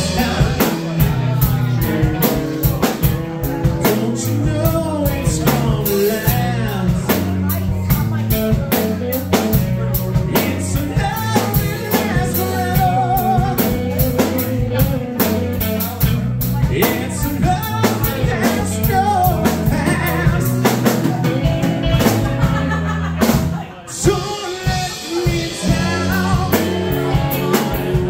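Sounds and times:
live rock band playing: 0.0s - 28.0s.

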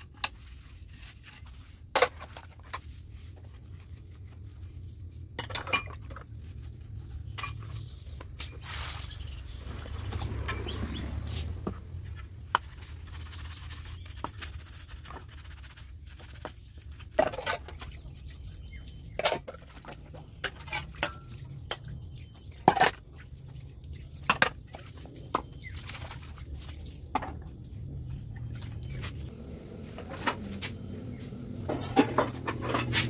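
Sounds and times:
hose water rinsing dishes: 16.9s - 33.0s.

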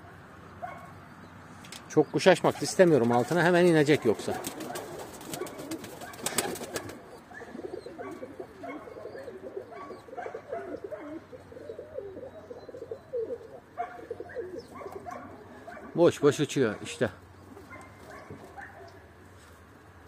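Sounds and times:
pigeons cooing: 2.1s - 19.1s.

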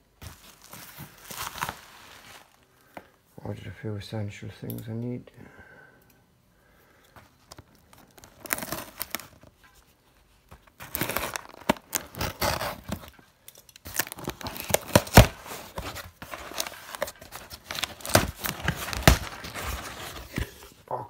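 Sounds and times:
cardboard crackling and scraping: 0.1s - 2.6s, 7.4s - 13.2s, 13.9s - 20.8s
scissors slitting packing tape: 10.8s - 15.5s.

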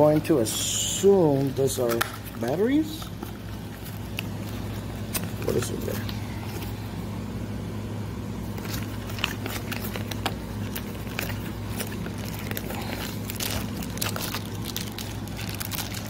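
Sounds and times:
steady low hum: 0.0s - 16.0s
plastic bag crackling: 8.4s - 16.0s.

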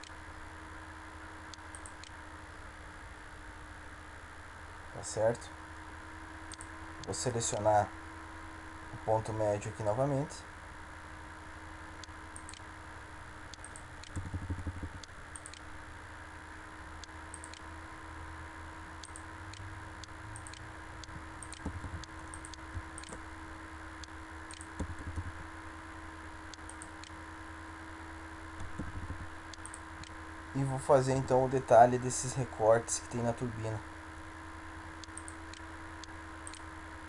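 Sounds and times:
faint steady hum: 0.0s - 37.0s
computer mouse clicks: 1.5s - 2.2s, 6.5s - 7.6s, 12.0s - 12.7s, 13.5s - 15.7s, 17.0s - 17.7s, 19.0s - 23.2s, 24.0s - 25.3s, 26.5s - 27.2s, 28.6s - 30.2s, 35.0s - 36.7s.

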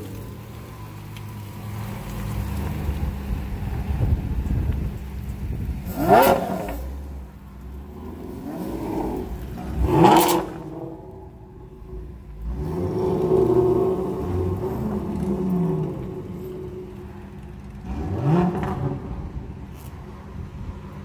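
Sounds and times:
car engine revving: 5.6s - 20.3s.

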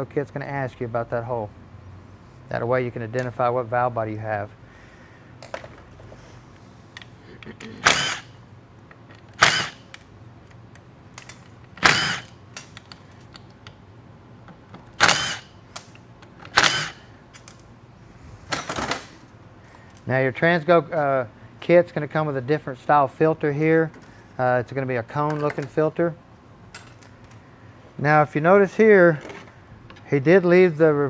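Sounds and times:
power driver spinning: 7.8s - 8.4s, 9.3s - 9.8s, 11.8s - 12.4s, 15.0s - 15.5s, 16.5s - 17.0s.

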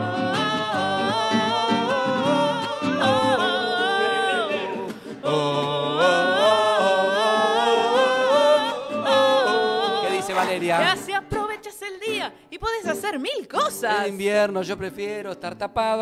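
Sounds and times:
wordless singing: 0.0s - 11.3s.

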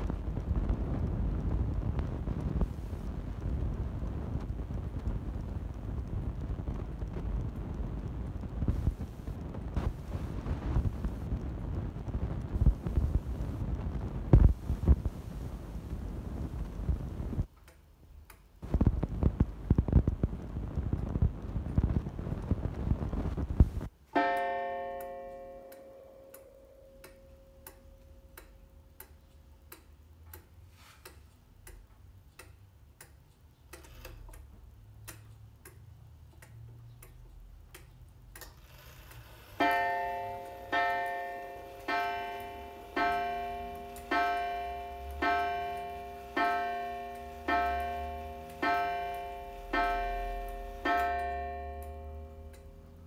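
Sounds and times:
clock striking: 24.2s - 28.4s, 39.5s - 53.0s
clock ticking: 24.2s - 33.9s, 39.6s - 53.0s.

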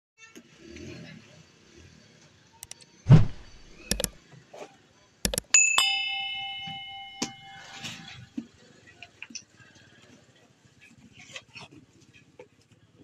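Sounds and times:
sharp clicks: 2.6s - 2.8s, 3.4s - 4.2s, 5.3s - 5.6s
bright bell ding: 5.3s - 8.2s.

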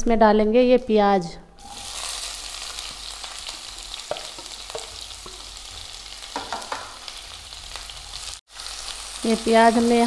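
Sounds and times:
onions sizzling in hot oil: 1.6s - 10.0s
spatula knocking and scraping pan: 4.0s - 5.5s, 6.3s - 7.0s.

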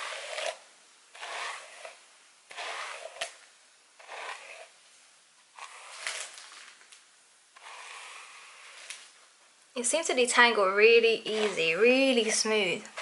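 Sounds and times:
brush rustling through hair: 1.2s - 3.4s, 5.6s - 7.0s, 10.6s - 13.0s.

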